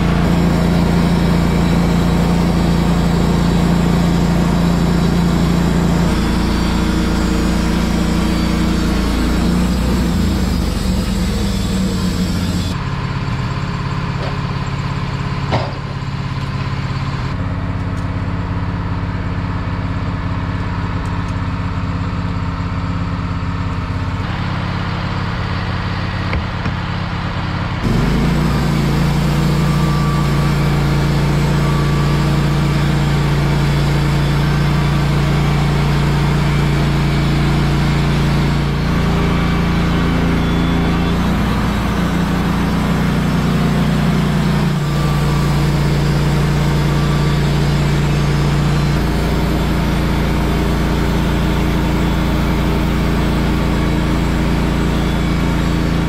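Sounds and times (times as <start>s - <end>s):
saw blade cutting log: 0.0s - 12.8s, 27.8s - 41.5s
band sawmill running: 0.0s - 56.0s.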